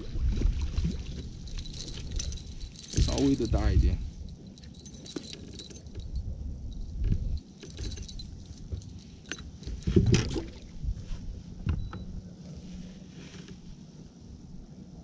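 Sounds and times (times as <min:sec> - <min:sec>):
metal wire clinking and jangling: 0:00.0 - 0:10.4.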